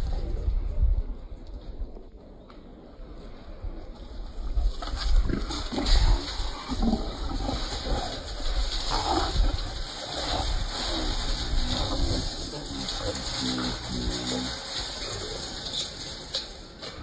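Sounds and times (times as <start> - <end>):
hogs squealing and grunting: 4.8 - 14.6.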